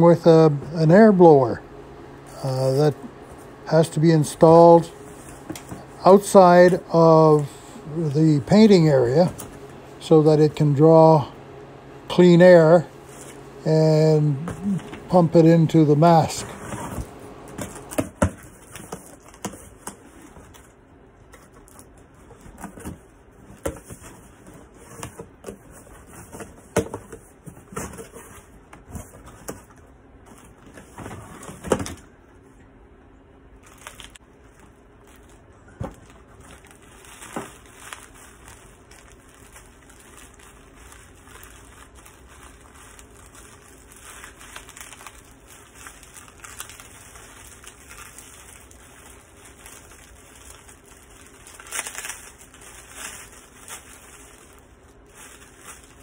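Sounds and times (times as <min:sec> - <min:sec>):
plastic wrapping rustling: 0:33.6 - 0:56.0.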